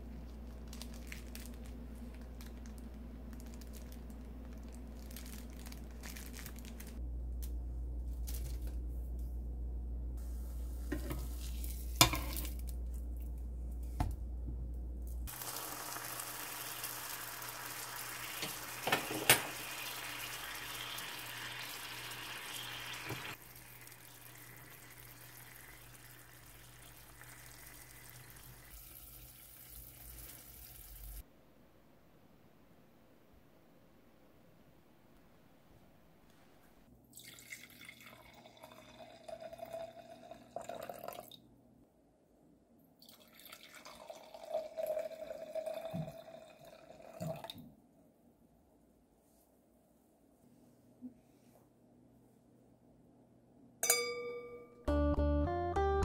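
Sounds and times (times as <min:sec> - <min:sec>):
low hum: 0:00.0 - 0:15.3
cheese sizzling in a pan: 0:15.3 - 0:31.2.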